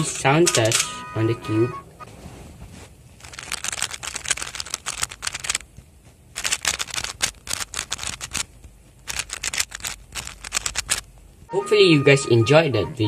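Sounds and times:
puzzle cube layers clicking: 0.5s - 0.9s, 3.2s - 5.7s, 6.4s - 11.1s.

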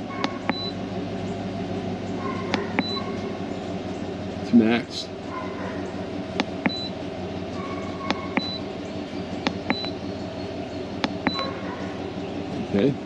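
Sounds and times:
short high beeps: 9.7s - 10.0s.

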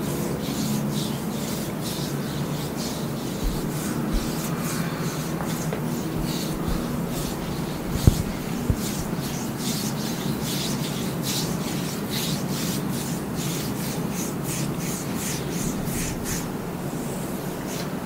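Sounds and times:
steady low hum: 0.0s - 10.2s
hands rubbing skin: 0.5s - 13.1s
short knock: 3.4s - 4.6s, 5.4s - 9.1s.

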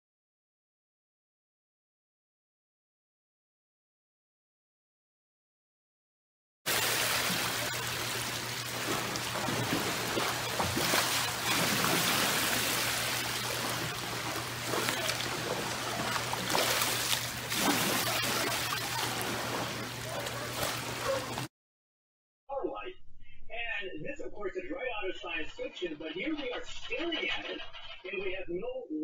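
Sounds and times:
pool water sloshing and splashing: 6.7s - 21.5s
steady low hum: 6.7s - 21.5s.

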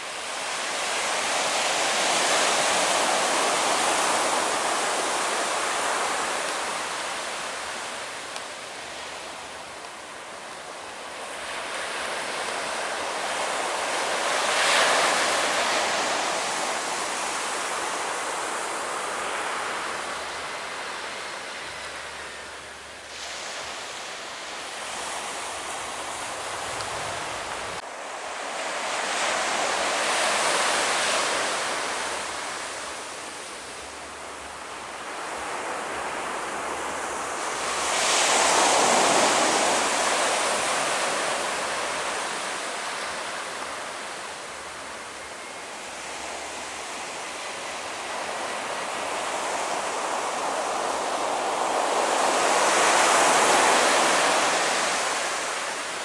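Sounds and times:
surf breaking on a beach: 0.0s - 56.0s
wind buffeting the microphone: 23.2s - 27.8s.

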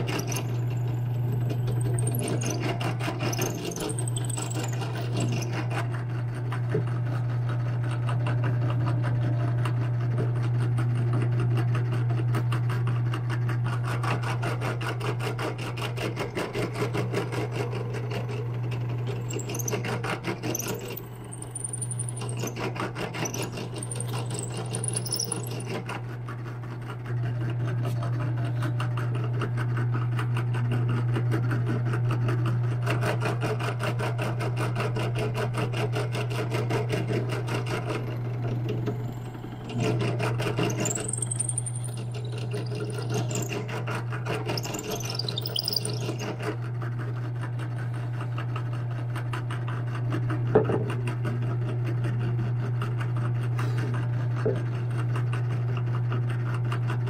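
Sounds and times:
high-pitched squeals: 0.0s - 5.6s, 19.1s - 25.8s, 39.0s - 43.8s, 44.5s - 46.4s
power tool running: 0.0s - 5.8s, 17.8s - 25.8s, 38.0s - 46.3s.

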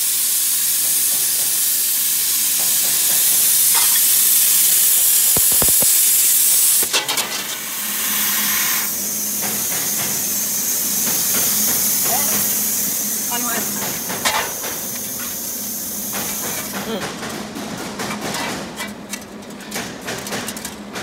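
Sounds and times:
plasma torch hissing: 0.0s - 17.0s
sharp clicks: 5.3s - 6.9s.

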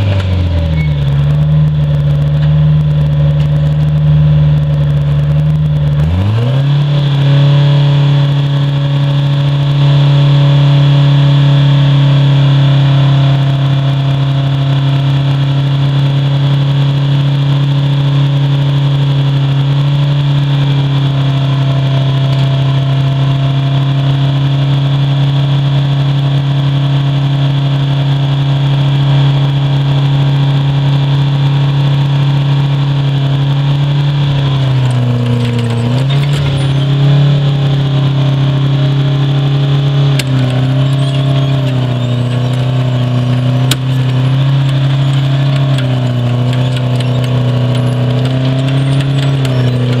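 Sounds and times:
trencher engine running: 0.0s - 50.0s
high whine: 31.4s - 50.0s
sharp clicks: 40.2s - 50.0s.

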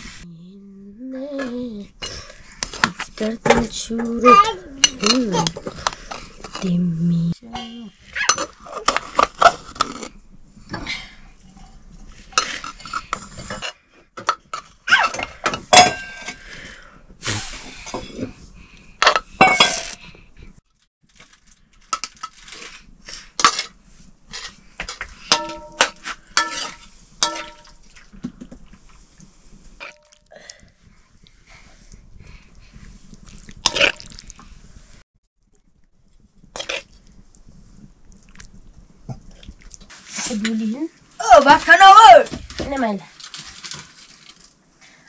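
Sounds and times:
pots and utensils clattering: 2.0s - 6.8s, 7.4s - 16.7s, 19.0s - 20.1s, 23.3s - 28.6s.

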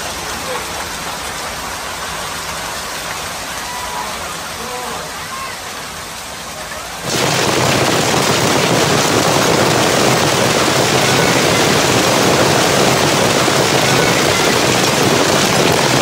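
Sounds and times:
heavy hail pelting down: 5.8s - 16.0s.

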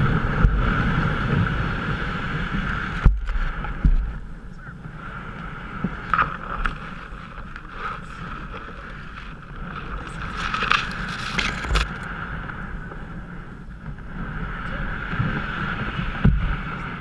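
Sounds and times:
reeds scraping canoe side: 0.0s - 13.2s
reeds snapping: 6.0s - 12.0s.

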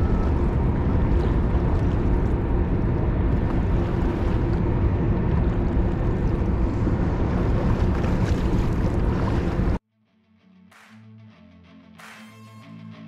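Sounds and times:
boat motor rumbling: 0.0s - 9.8s
water noise: 0.0s - 9.8s
wind: 0.0s - 9.8s.

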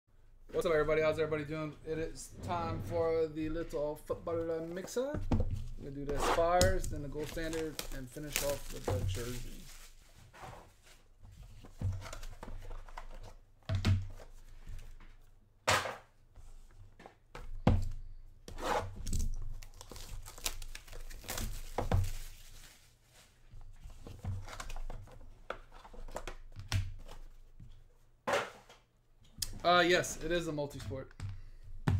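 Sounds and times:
plastic wrapping tearing and crinkling: 6.5s - 10.0s, 19.0s - 22.8s.

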